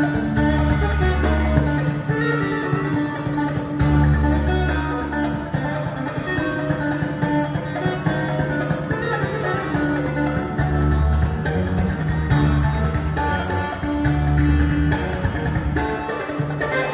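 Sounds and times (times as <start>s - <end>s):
electric guitar plucked notes: 0.0s - 16.9s
deep held bass notes: 10.1s - 15.9s.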